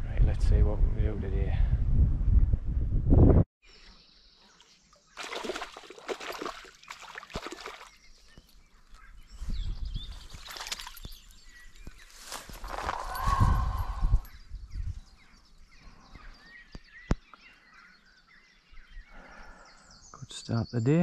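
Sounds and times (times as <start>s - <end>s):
fish splashing at water surface: 5.1s - 8.0s.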